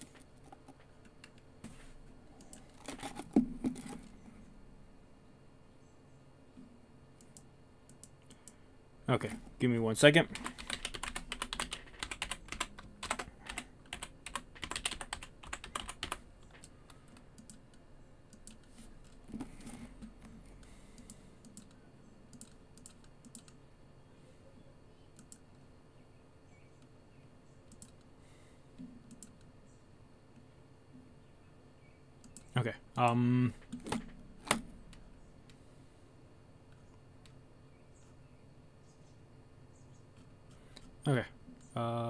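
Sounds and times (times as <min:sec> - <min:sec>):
computer keyboard typing: 0:02.4 - 0:04.1, 0:10.3 - 0:20.0, 0:20.6 - 0:23.6.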